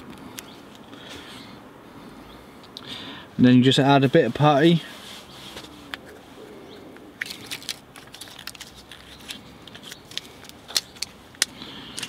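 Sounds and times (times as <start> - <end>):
faint steady background noise: 0.0 - 12.0
small clicks and crinkles: 7.0 - 12.0.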